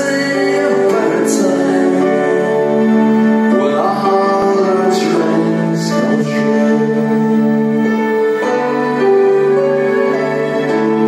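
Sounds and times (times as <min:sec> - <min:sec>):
voices singing slow melody: 0:00.0 - 0:08.1
sustained chords: 0:00.0 - 0:11.0.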